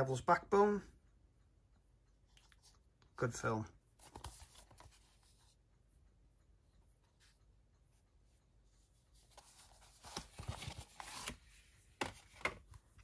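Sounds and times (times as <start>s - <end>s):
plastic case rustling and clicking: 9.4s - 12.8s.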